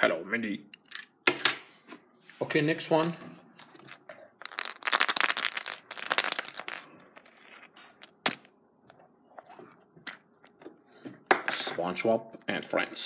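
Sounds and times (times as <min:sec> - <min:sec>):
plastic eggs clattering: 0:03.7 - 0:06.9.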